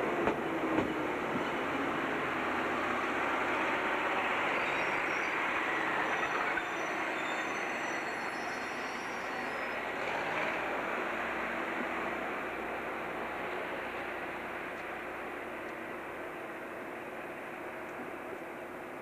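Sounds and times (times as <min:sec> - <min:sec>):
electric train running: 0:00.0 - 0:19.0
wheel squeal: 0:04.1 - 0:10.6.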